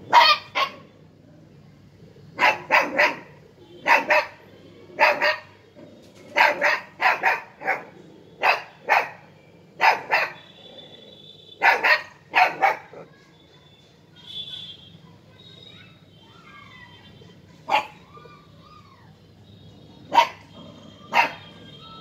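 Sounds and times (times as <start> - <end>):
puppy barking: 0.0 - 1.0, 2.4 - 11.0, 11.6 - 13.1, 17.6 - 18.5, 20.0 - 22.0.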